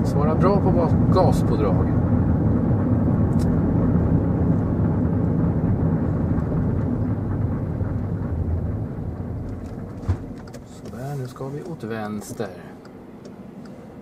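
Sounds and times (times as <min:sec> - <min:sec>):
car engine hum: 0:00.0 - 0:14.0
road noise inside car: 0:00.0 - 0:14.0.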